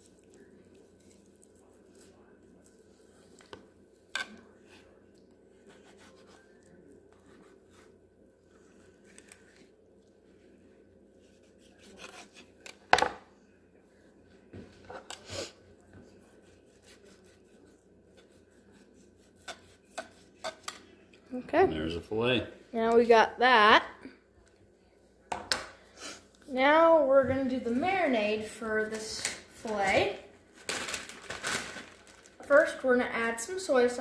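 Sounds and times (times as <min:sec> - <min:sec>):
knife slicing fish: 0:05.6 - 0:06.5, 0:11.2 - 0:12.8, 0:16.2 - 0:20.7.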